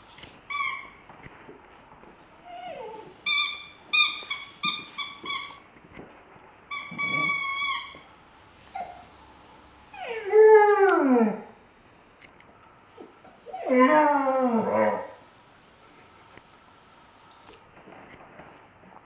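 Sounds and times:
puppy whining: 0:00.5 - 0:01.0, 0:02.4 - 0:05.6, 0:06.7 - 0:09.2, 0:09.8 - 0:11.5, 0:12.9 - 0:15.2
dog moaning: 0:06.9 - 0:08.0, 0:12.9 - 0:15.2.

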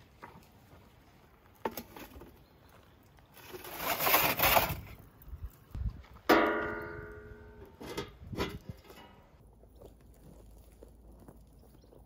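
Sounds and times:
metal tray scraping: 0:03.4 - 0:05.0, 0:07.6 - 0:09.2
metal tray clanging: 0:06.3 - 0:09.2.

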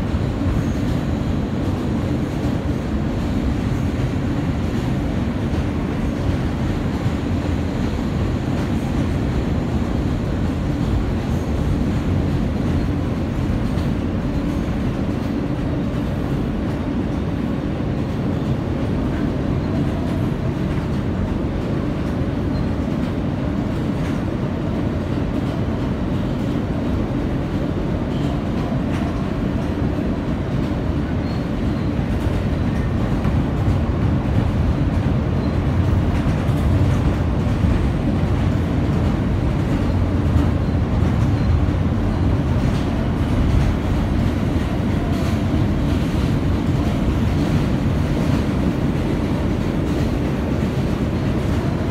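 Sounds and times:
subway car wheels rumbling on rails: 0:00.0 - 0:51.9.

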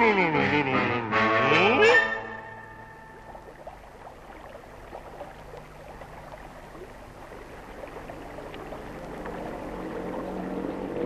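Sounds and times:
water running and trickling: 0:02.6 - 0:11.0.

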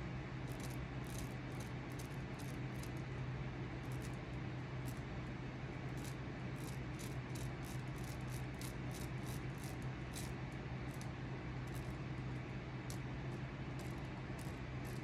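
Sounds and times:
steady low hum: 0:00.0 - 0:15.0
carving tool scratching wood: 0:00.5 - 0:03.0, 0:06.0 - 0:11.1, 0:13.7 - 0:15.0.

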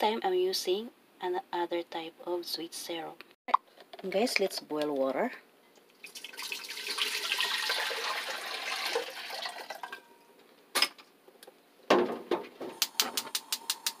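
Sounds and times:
water pouring into steel pot: 0:05.9 - 0:10.0.

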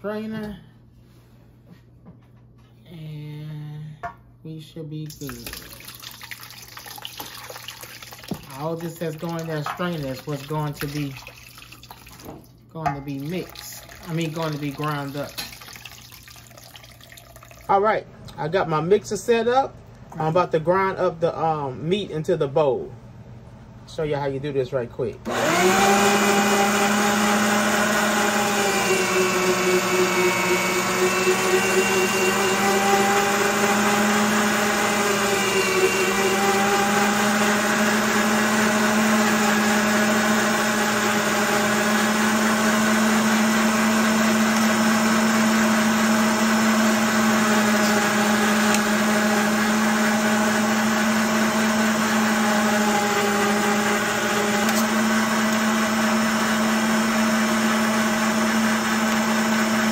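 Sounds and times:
electric meat grinder running: 0:25.3 - 0:59.9.

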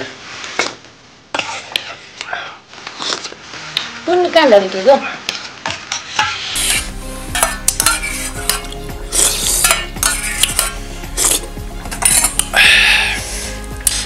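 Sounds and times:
metal spoon scraping a bowl: 0:05.3 - 0:12.6.

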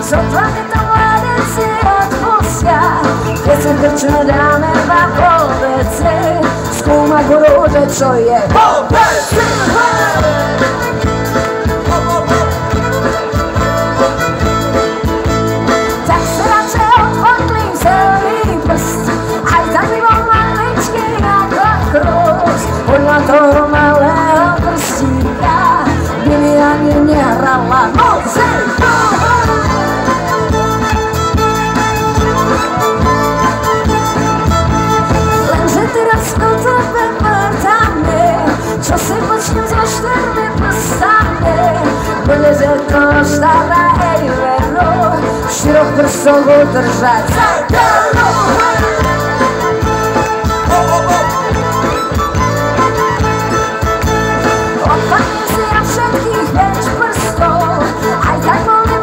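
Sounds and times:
woman singing: 0:00.0 - 0:12.6, 0:15.9 - 0:30.4, 0:35.4 - 0:49.8, 0:54.6 - 0:59.0
bass guitar: 0:00.0 - 0:59.0
drum kit: 0:00.0 - 0:59.0
electric guitar: 0:00.0 - 0:59.0
fiddle: 0:00.0 - 0:59.0.

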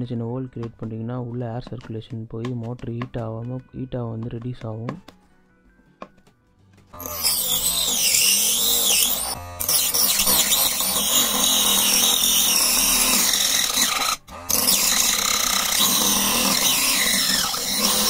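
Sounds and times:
motor-driven saw blade whining: 0:07.0 - 0:18.0.

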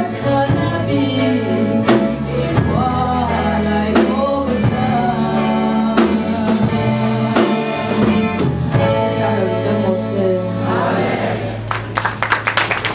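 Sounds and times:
woman singing gospel song: 0:00.0 - 0:07.7, 0:08.8 - 0:10.7
instrumental accompaniment with drums: 0:00.0 - 0:12.0.

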